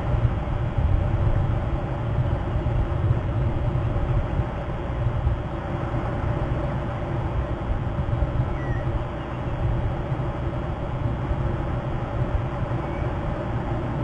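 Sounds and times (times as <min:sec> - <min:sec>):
wind rumble on microphone: 0:00.0 - 0:14.0
faint bird chirp: 0:08.5 - 0:09.6, 0:12.7 - 0:13.2.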